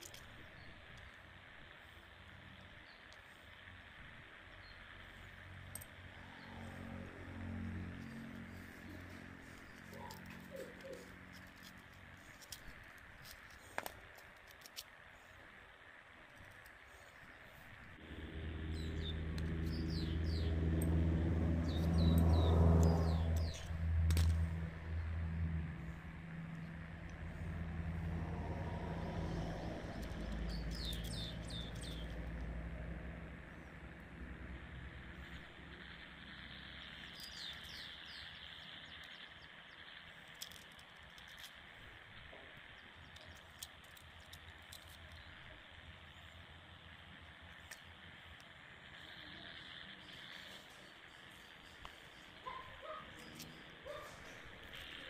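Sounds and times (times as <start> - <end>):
faint outdoor background hiss: 0.0 - 55.0
low engine-like drone: 0.0 - 55.0
birds chirping: 6.1 - 12.7, 17.0 - 25.2, 29.2 - 32.4, 36.3 - 40.2, 49.0 - 55.0.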